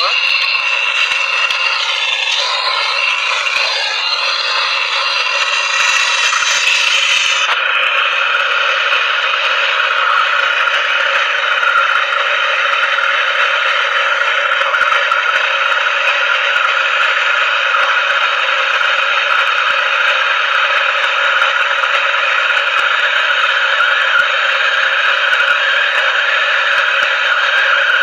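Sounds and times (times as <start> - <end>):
gas torch hissing: 0.0 - 12.2.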